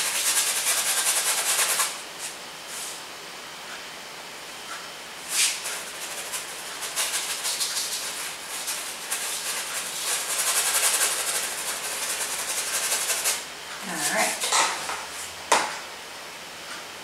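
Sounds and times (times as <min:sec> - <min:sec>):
paintbrush scrubbing on canvas: 0:00.0 - 0:02.0, 0:05.3 - 0:14.5.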